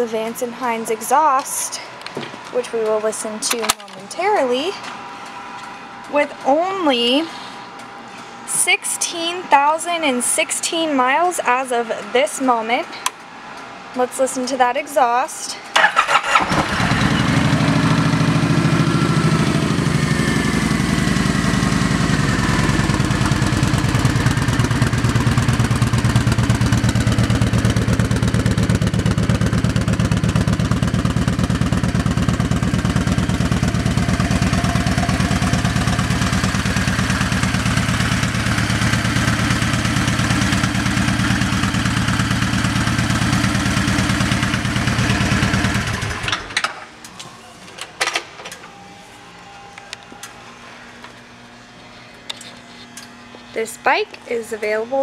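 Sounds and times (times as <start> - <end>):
motorcycle engine idling: 15.9 - 46.5.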